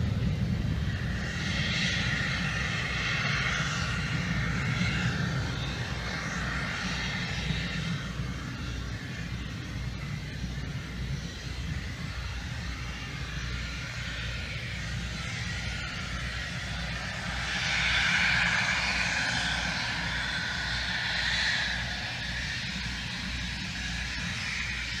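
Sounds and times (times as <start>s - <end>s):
jet engines whining: 0.0s - 25.0s.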